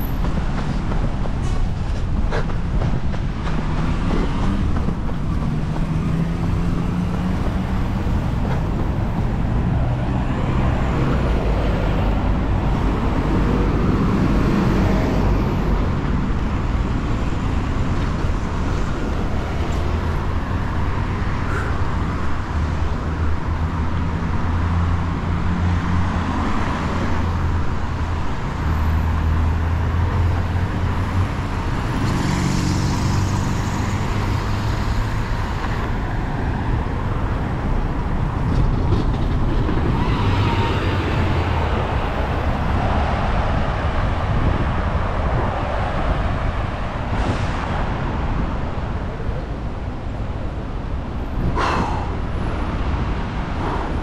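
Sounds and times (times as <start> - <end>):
road noise: 0.0 - 54.0
vehicle engines humming: 0.0 - 54.0.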